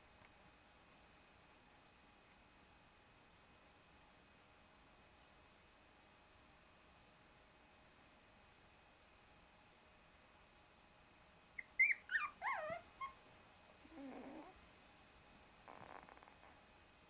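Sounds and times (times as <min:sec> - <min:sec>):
puppies squeaking: 0:11.6 - 0:13.2
puppy grunting whine: 0:11.7 - 0:13.2, 0:13.8 - 0:14.6, 0:15.6 - 0:16.6
soft scratchy rustle: 0:13.3 - 0:16.7.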